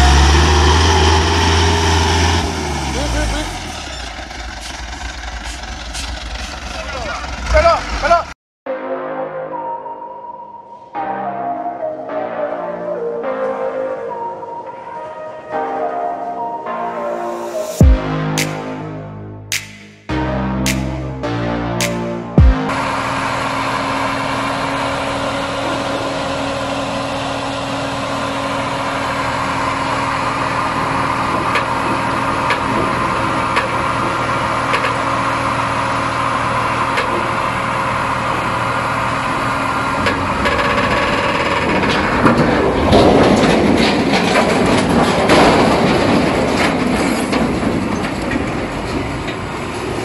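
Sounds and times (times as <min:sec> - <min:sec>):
heavy truck engine running: 0:00.0 - 0:08.4, 0:20.2 - 0:50.0.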